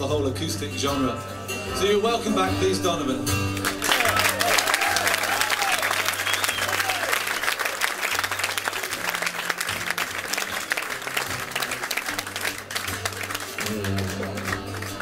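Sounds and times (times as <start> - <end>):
audience applauding: 3.5 - 15.0.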